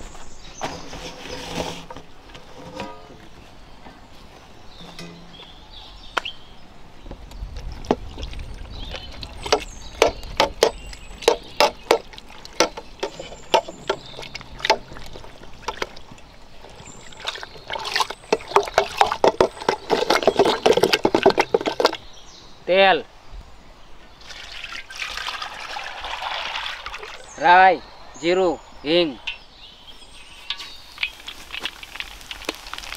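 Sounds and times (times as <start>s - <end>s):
curd squelching and slapping: 10.6s - 22.0s.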